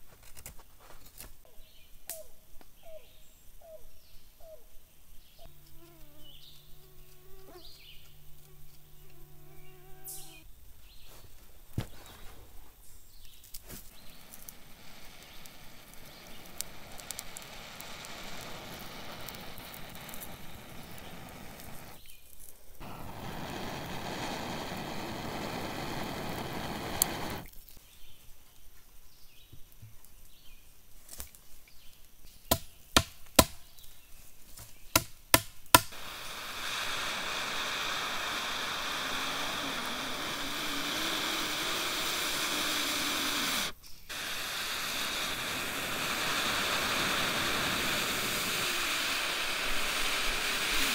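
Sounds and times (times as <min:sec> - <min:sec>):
breath blowing on ember: 0:13.6 - 0:22.1, 0:22.8 - 0:27.5, 0:35.8 - 0:50.9.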